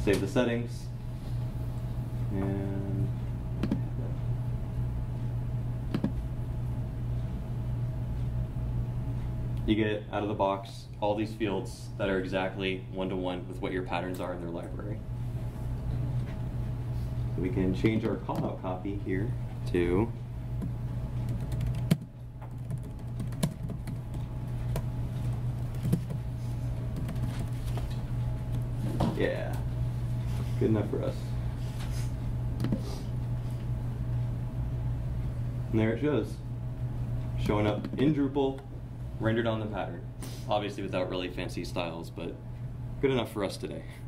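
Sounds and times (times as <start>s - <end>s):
steady low hum: 0.0s - 44.0s
computer keyboard clicks: 21.2s - 24.8s, 25.6s - 26.2s, 26.9s - 27.6s.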